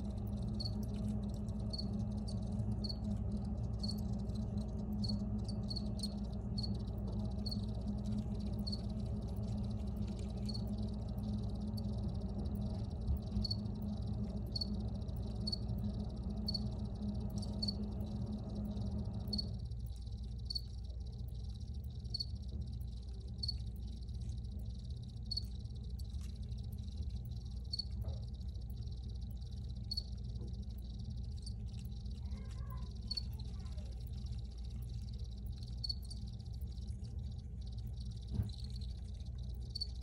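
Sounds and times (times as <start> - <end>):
crickets chirping: 0.0 - 40.0
low background hum: 0.0 - 40.0
steady low rumble: 0.0 - 40.0.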